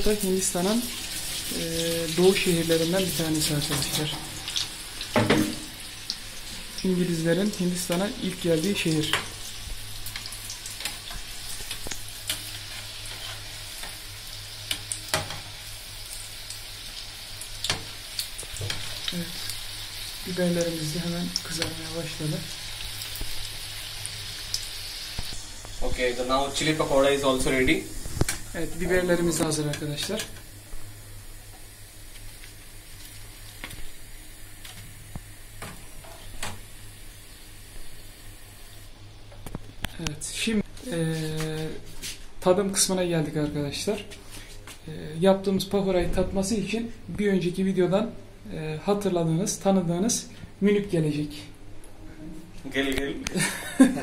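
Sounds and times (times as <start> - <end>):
chilies sizzling in hot oil: 0.0 - 39.0.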